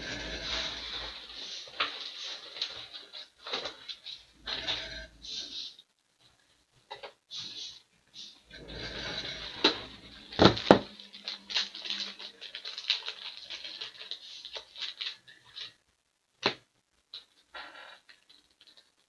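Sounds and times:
plastic packaging crinkling: 0.0s - 5.0s, 8.6s - 15.8s, 18.0s - 19.0s
small irregular crackles: 0.0s - 19.0s.

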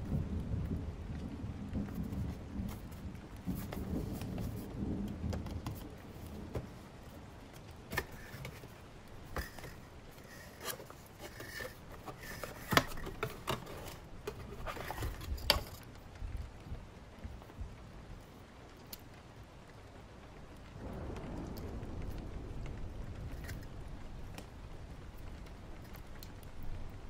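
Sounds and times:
low thunder rumble: 0.0s - 15.4s, 20.6s - 27.0s
rain: 0.0s - 27.0s
paper rustling: 5.4s - 15.9s.

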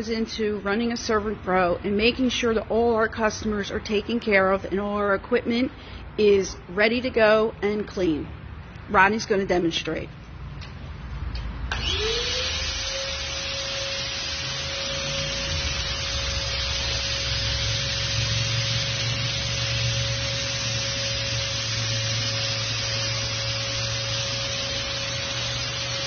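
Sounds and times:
sprayer motor whine: 11.7s - 26.0s
spray hissing: 14.0s - 26.0s.

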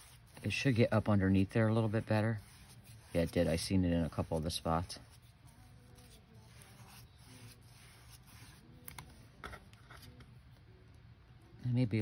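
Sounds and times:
sponge brush rubbing paper: 0.0s - 9.0s.

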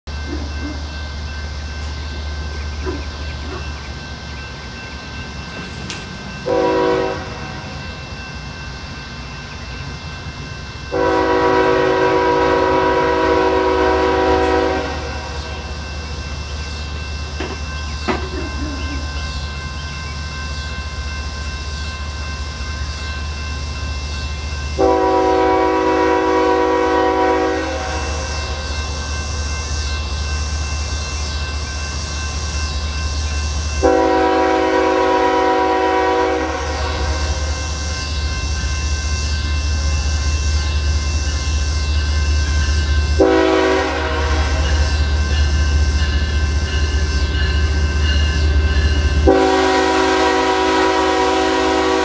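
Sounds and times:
locomotive air horn blasts: 6.4s - 7.8s, 10.9s - 15.6s, 24.8s - 28.3s, 33.8s - 37.5s, 43.2s - 44.9s, 49.2s - 52.0s.

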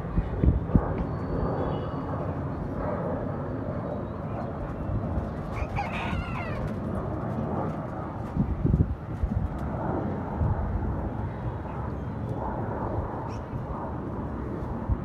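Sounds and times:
steady background noise: 0.0s - 15.0s
rooster crowing: 5.6s - 6.8s.

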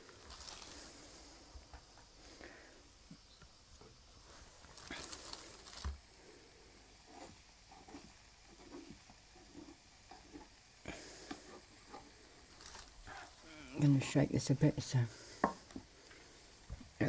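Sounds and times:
batter sizzling in frying pan: 0.0s - 17.0s
utensil scraping and tapping pan: 7.1s - 10.6s.

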